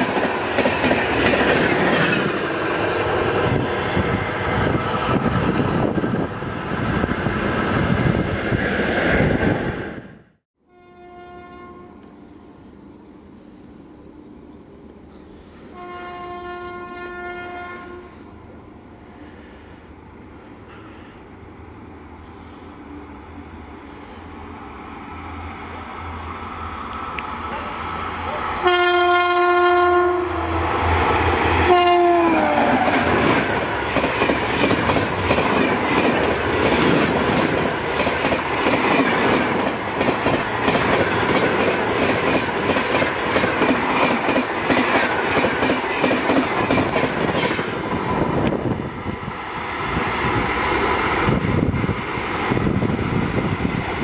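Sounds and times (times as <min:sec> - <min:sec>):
train coaches rushing by: 0:00.0 - 0:10.0, 0:22.2 - 0:54.0
train horn blasts: 0:10.6 - 0:12.1, 0:15.6 - 0:18.2, 0:28.6 - 0:30.6, 0:31.6 - 0:33.1.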